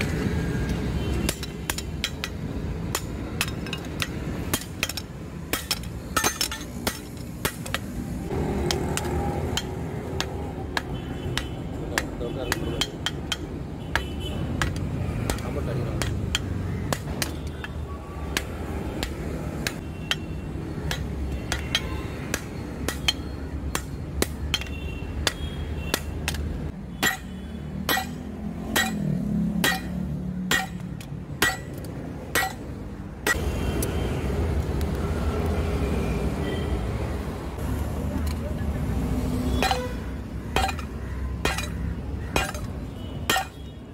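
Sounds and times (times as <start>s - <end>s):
hammer beating metal on anvil: 27.0s - 32.6s, 39.6s - 41.8s, 42.4s - 42.7s.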